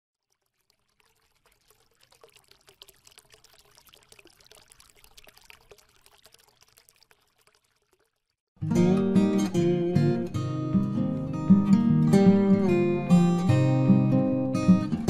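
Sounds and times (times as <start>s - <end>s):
faint dense crackling trickle: 0.1s - 8.5s.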